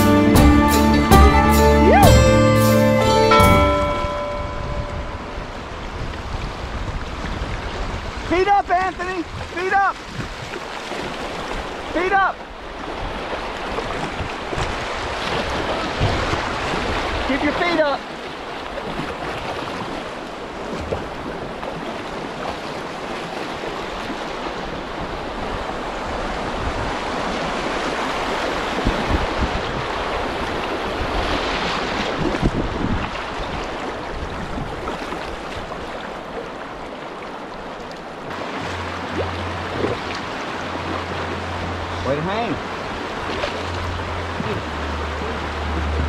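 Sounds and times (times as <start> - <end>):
whitewater rushing: 0.0 - 46.0
paddle strokes splashing: 3.0 - 46.0
wind buffeting microphone: 4.4 - 11.8, 12.6 - 17.4, 18.5 - 36.0.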